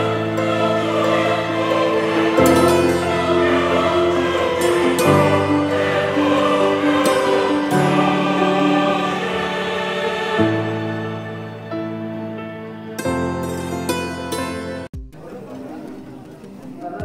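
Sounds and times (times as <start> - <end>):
choir-like chords: 0.0 - 14.9.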